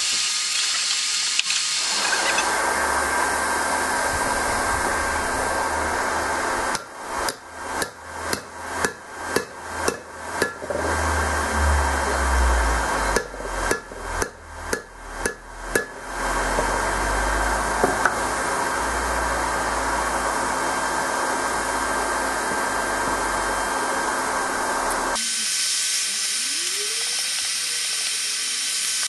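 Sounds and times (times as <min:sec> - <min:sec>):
steady loud hiss: 0:00.0 - 0:29.0
hammer striking steel ringing: 0:06.7 - 0:10.7, 0:13.1 - 0:16.1.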